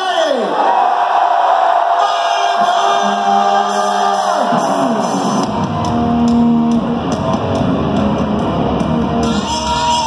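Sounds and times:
electric guitar riff: 3.0s - 10.0s
bass and drums: 4.1s - 10.0s.

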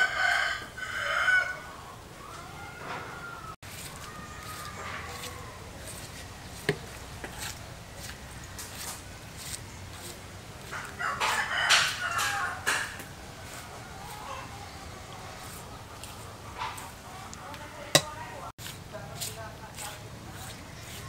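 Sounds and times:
rooster crowing: 0.0s - 5.7s, 10.6s - 15.6s
chickens clucking: 9.8s - 18.1s.

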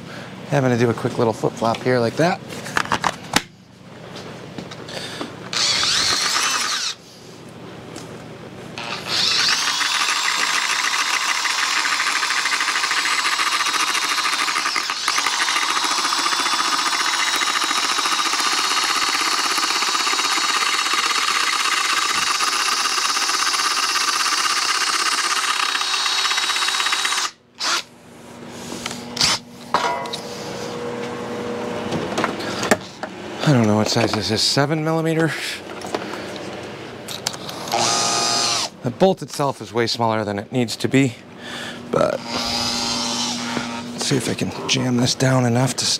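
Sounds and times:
cordless drill whining: 5.5s - 7.0s, 8.8s - 27.9s, 37.6s - 38.7s, 42.1s - 44.0s.

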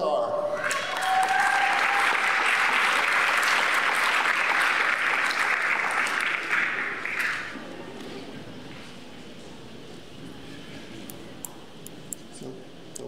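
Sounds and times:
audience applauding: 0.6s - 7.6s.

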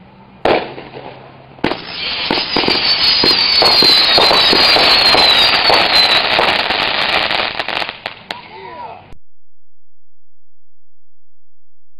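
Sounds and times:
firework crackling: 0.4s - 8.4s
firework shots: 0.4s - 8.4s
firework whistling: 0.5s - 8.2s.

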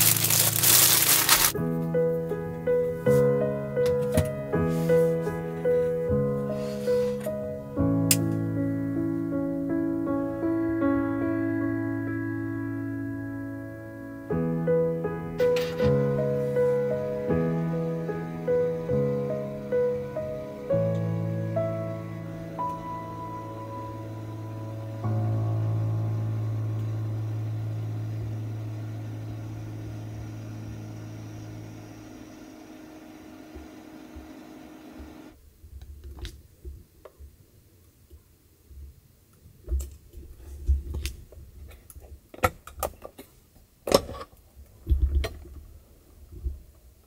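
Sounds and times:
ambient music chord: 0.0s - 35.3s.

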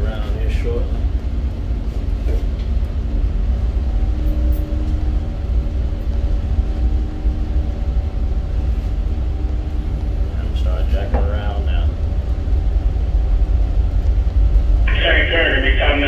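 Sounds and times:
towboat diesel engines rumbling: 14.5s - 16.0s.

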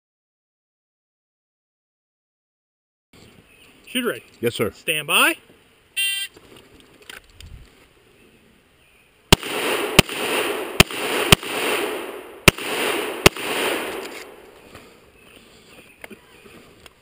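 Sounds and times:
pistol shots: 9.3s - 14.6s.

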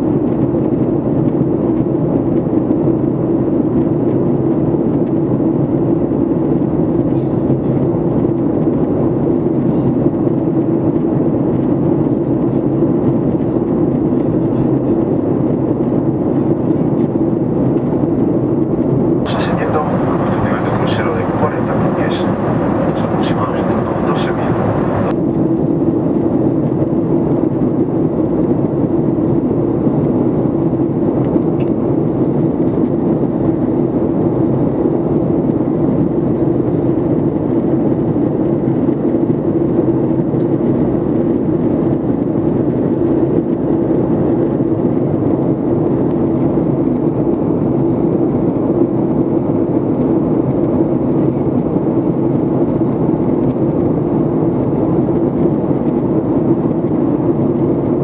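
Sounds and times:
jet engines and airflow rushing: 0.0s - 58.0s
steady low hum: 6.9s - 26.8s.

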